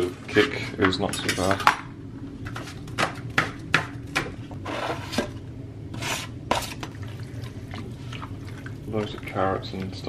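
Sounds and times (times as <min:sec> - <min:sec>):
blade scraping across board: 0:05.9 - 0:06.8.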